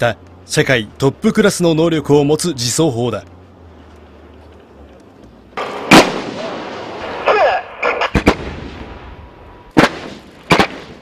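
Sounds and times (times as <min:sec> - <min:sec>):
artillery firing with rolling echo: 0:05.6 - 0:11.0.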